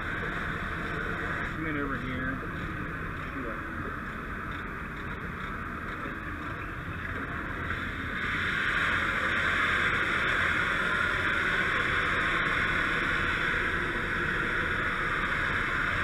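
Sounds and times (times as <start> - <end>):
fire hose hissing: 0.0 - 3.7, 7.3 - 16.0.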